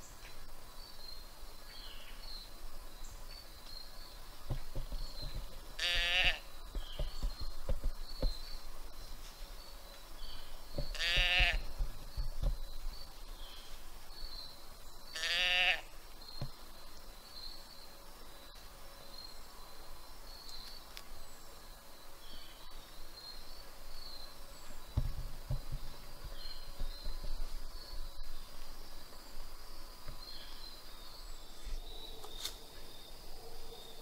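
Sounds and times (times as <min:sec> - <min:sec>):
rustling in leaves: 0:00.0 - 0:34.0
deer call bleats: 0:05.8 - 0:06.4, 0:10.9 - 0:11.6, 0:15.2 - 0:15.9.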